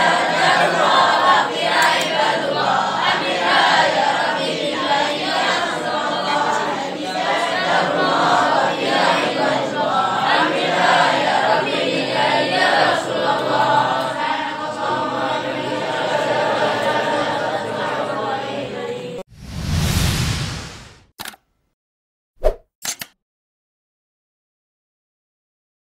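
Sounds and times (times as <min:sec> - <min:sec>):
group chanting a prayer: 0:00.0 - 0:19.2.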